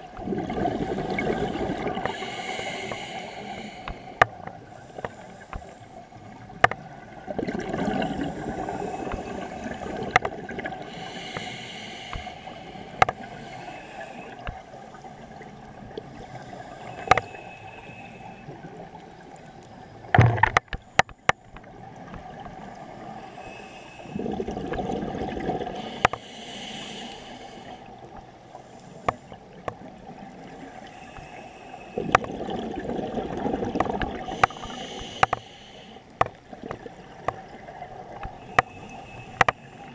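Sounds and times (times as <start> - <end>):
exhaled air bubbling underwater: 0.0 - 39.9
regulator inhalation hiss: 2.0 - 4.2, 10.8 - 14.5, 16.6 - 18.5, 25.8 - 27.9, 34.3 - 36.1.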